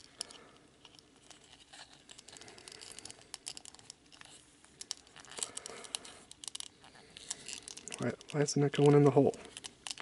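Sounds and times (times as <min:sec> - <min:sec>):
plastic parts clicking and scraping: 0:00.0 - 0:10.0.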